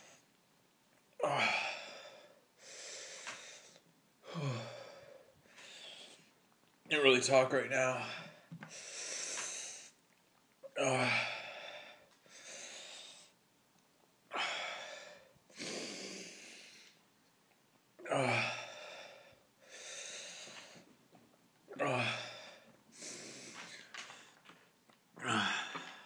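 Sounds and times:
man breathing heavily: 1.2s - 6.3s, 7.9s - 10.0s, 10.9s - 13.4s, 14.3s - 17.0s, 18.1s - 20.9s, 21.8s - 24.6s, 25.2s - 26.0s.

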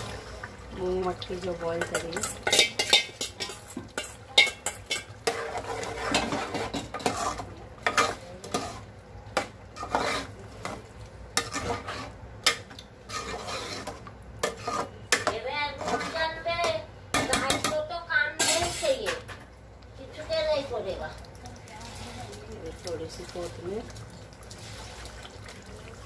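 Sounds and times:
masala sizzling: 0.0s - 26.0s
metal ladle scraping pot: 0.8s - 19.4s.

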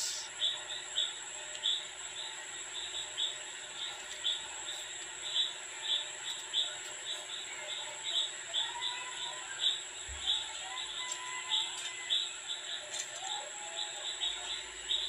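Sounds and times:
background hiss: 0.0s - 0.4s
insect chirping: 0.0s - 12.8s, 13.8s - 15.0s.

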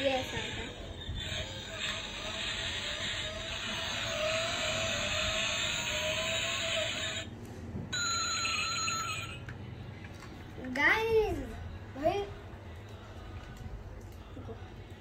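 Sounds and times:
toy engine sound effect rising: 0.3s - 7.3s.

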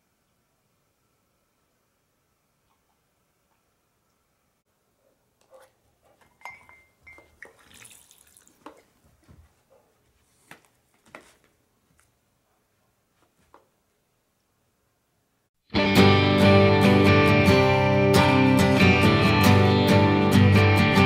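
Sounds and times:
hot water splashing into a mug: 7.2s - 8.9s.

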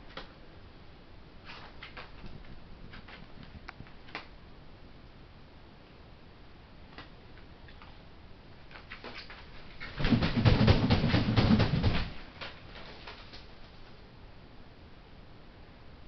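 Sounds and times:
gull wings flapping: 8.8s - 13.5s.

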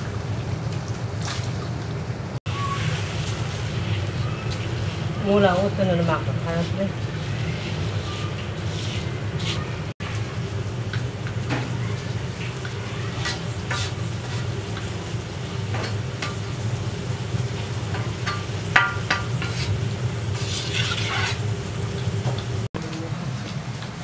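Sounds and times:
metal skimmer scraping steel pot: 18.2s - 21.5s.

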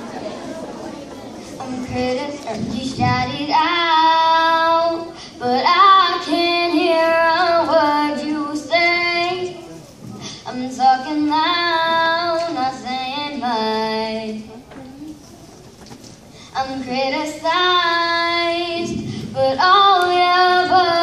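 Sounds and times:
girl singing into a microphone: 1.4s - 15.2s, 16.4s - 21.0s
short breaths: 5.1s - 5.4s, 10.1s - 10.5s, 16.2s - 16.6s.

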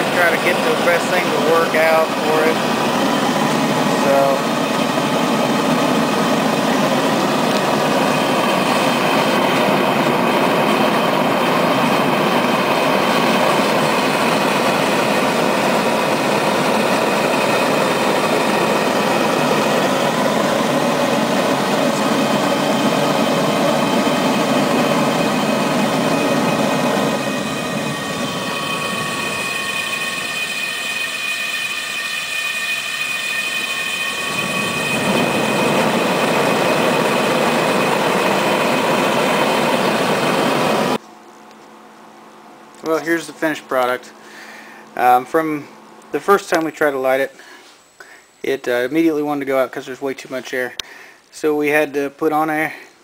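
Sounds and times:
gas burner flame rushing: 0.0s - 41.0s
steady high tone: 0.0s - 41.0s.

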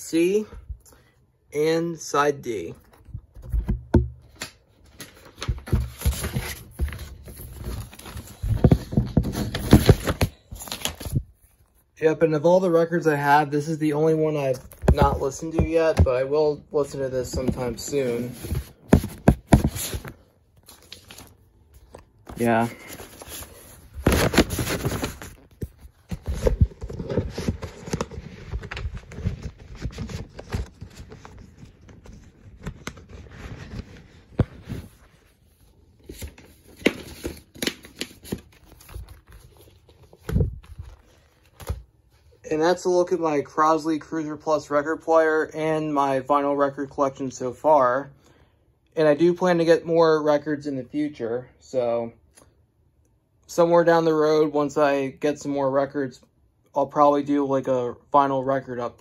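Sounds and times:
phone handling rustling and knocks: 14.6s - 16.3s.

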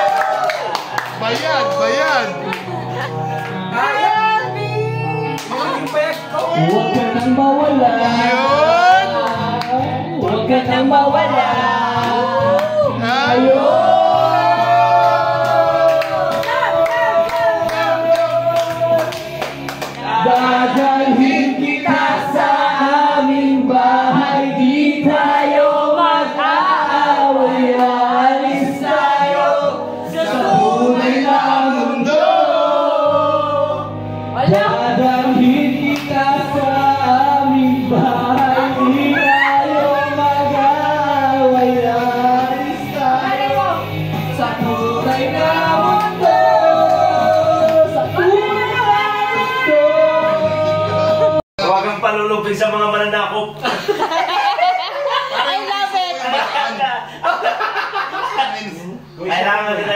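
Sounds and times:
backing track: 0.8s - 51.4s
man singing karaoke: 1.2s - 53.7s.

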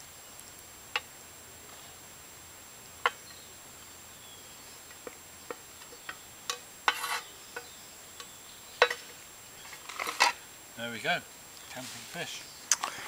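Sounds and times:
spoon scraping pan: 4.8s - 10.4s.

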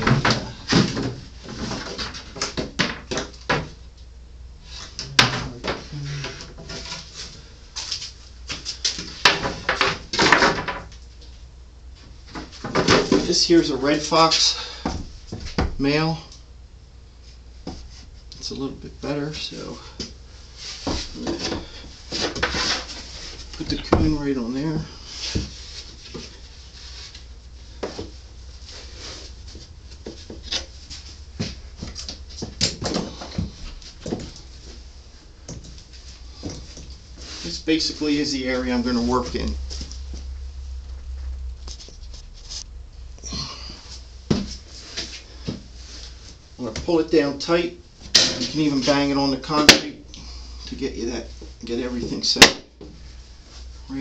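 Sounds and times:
wooden boards knocking and clattering: 0.0s - 3.8s, 5.1s - 7.0s, 9.1s - 11.0s, 12.3s - 13.4s.

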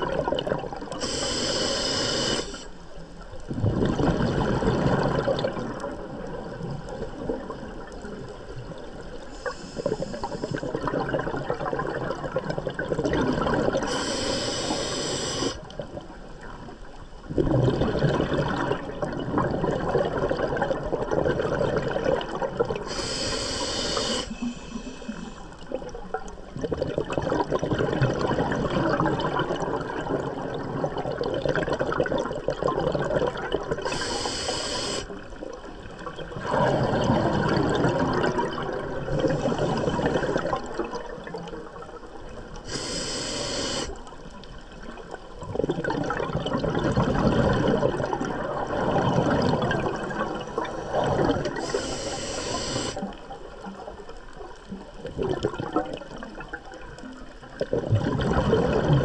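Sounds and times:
hissing regulator inhalations: 1.0s - 2.7s, 13.8s - 15.6s, 22.9s - 25.6s, 33.8s - 35.1s, 42.7s - 44.0s, 51.6s - 53.1s
bubbling exhalation: 17.3s - 22.9s, 36.4s - 41.1s, 45.5s - 51.9s, 57.6s - 59.0s.

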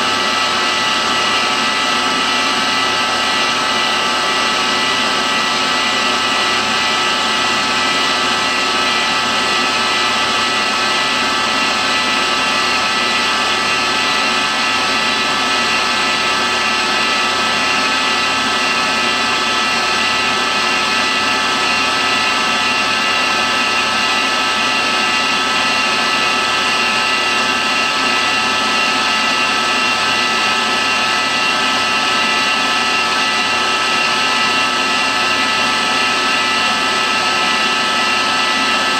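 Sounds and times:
metal cutting noise: 0.0s - 38.9s
milling machine spindle whine: 0.0s - 38.9s.

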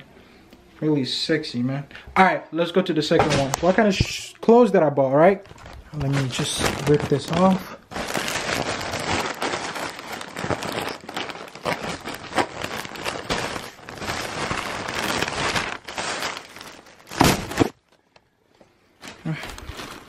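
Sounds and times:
plastic bag crinkling and tearing: 5.2s - 18.2s, 19.0s - 20.0s.

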